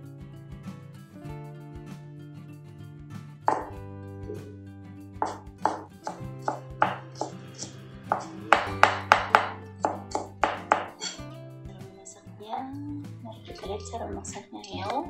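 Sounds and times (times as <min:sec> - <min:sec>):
background music: 0:00.0 - 0:15.0
cleaver chopping on wooden board: 0:03.5 - 0:04.4, 0:05.2 - 0:11.2.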